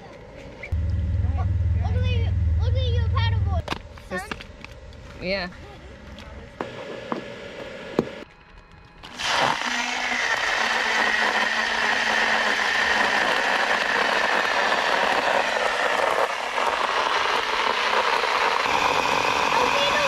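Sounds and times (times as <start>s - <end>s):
stick blender motor humming: 9.0s - 20.0s.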